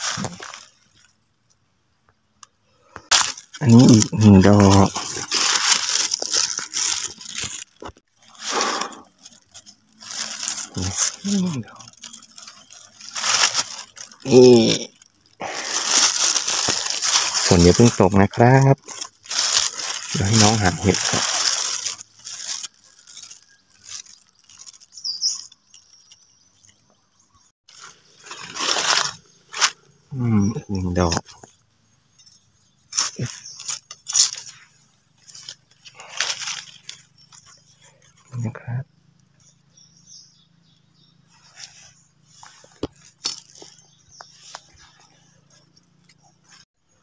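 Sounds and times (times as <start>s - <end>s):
footsteps crunching leaf litter: 0.0s - 1.1s, 3.0s - 26.8s, 27.7s - 29.9s, 32.8s - 38.0s, 41.3s - 46.7s
dry leaves crackling and rustling: 0.0s - 1.2s, 3.1s - 26.9s, 27.7s - 38.4s, 41.2s - 46.7s
high bird chirp: 24.4s - 27.5s, 39.3s - 42.6s, 43.2s - 47.0s.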